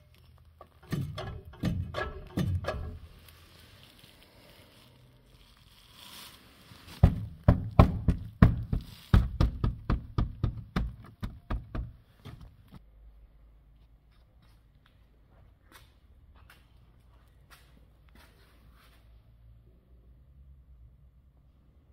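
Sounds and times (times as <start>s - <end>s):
screwdriver knocking on rusted steel: 0.8s - 3.0s, 7.0s - 12.5s.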